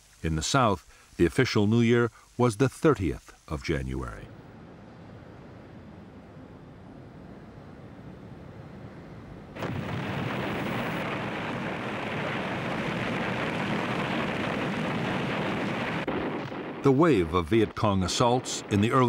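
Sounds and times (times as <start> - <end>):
explosions and fire roaring: 9.6 - 19.0.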